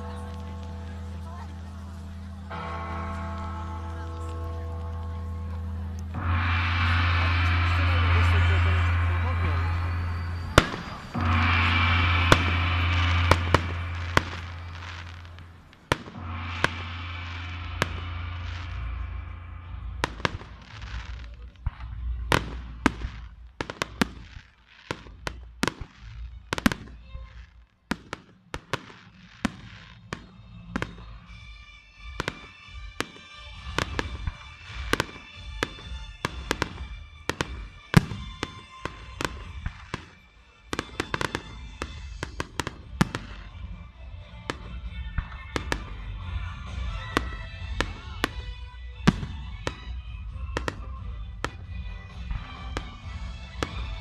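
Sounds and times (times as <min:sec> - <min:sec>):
music playing: 0:00.0 - 0:27.5, 0:28.6 - 0:54.0
firework shells bursting: 0:05.9 - 0:43.8.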